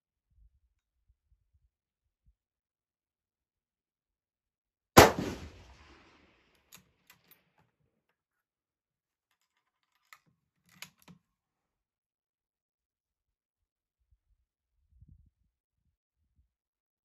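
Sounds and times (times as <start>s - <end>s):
rifle shot: 5.0s - 6.4s.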